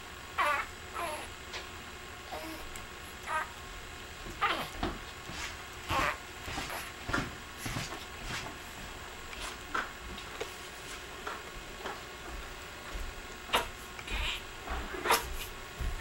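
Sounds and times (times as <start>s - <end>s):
baby grunts and snuffles: 4.4s - 4.8s, 5.9s - 6.9s, 13.5s - 14.4s, 15.0s - 15.5s.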